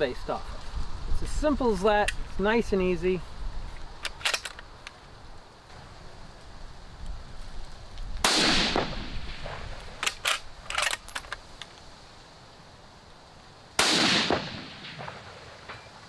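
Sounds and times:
rifle bolt clicking: 4.0 - 4.6
rifle shots with echo: 8.2 - 9.7, 13.8 - 15.7.

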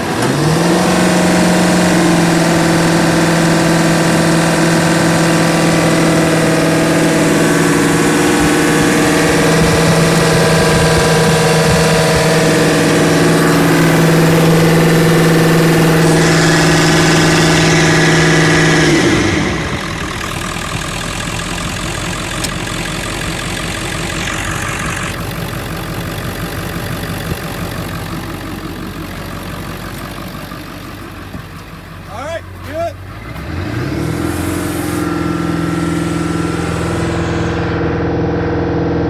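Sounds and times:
diesel engine running: 0.0 - 39.0.

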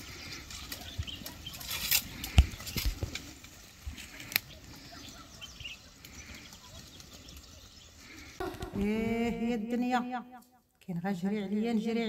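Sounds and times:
brush rustling and crackling: 0.0 - 9.0.

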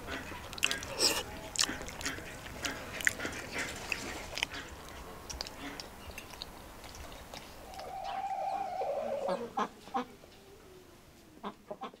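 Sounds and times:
fowl calling: 7.6 - 10.3.

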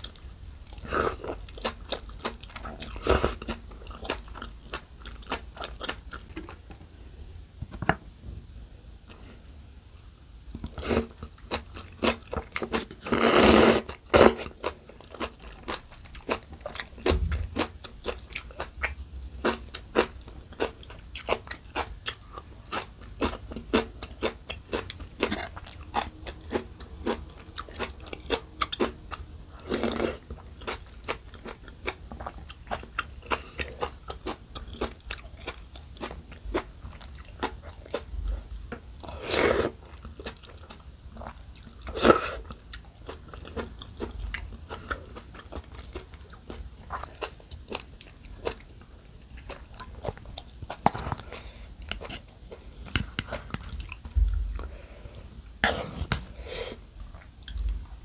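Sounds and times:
crunchy chewing: 10.5 - 56.4
slurping noodles: 13.1 - 14.3.

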